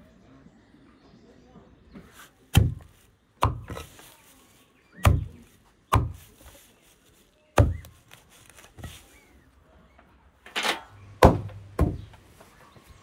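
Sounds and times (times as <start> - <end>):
cleaver chopping on wood block: 2.5 - 3.9, 5.0 - 6.3, 7.6 - 7.9.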